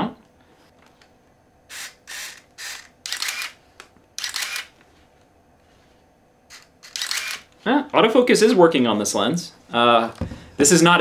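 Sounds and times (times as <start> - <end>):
autofocus lens whirring: 0.8 - 5.4, 6.5 - 7.7.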